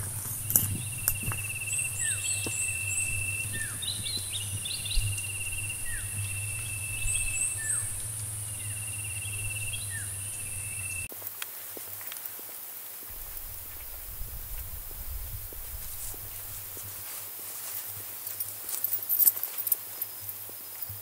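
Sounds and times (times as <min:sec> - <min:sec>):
high-pitched insect drone: 0:00.0 - 0:11.1
quick high chirps: 0:00.0 - 0:11.1
rippling trill: 0:00.0 - 0:11.1
short falling bird calls: 0:00.0 - 0:11.1.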